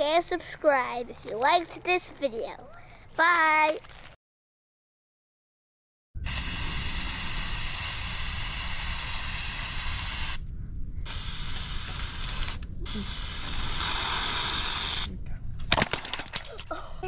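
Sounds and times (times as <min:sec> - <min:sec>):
aerosol can spraying: 0:06.3 - 0:10.4, 0:11.1 - 0:15.1.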